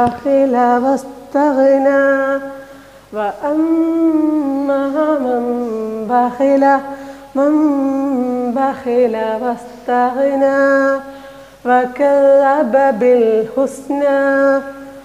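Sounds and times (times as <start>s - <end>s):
woman chanting: 0.0s - 15.0s.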